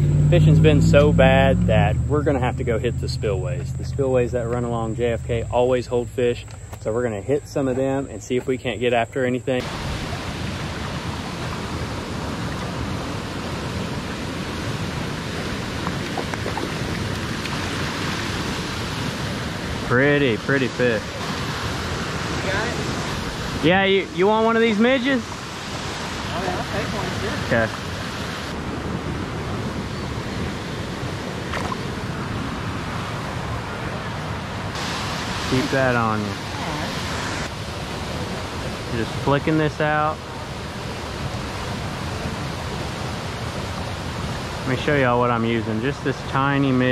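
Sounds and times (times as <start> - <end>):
wind on microphone: 9.6 - 19.9
flowing water rushing: 9.6 - 46.9
fish splashing at surface: 15.4 - 19.0, 31.4 - 32.0.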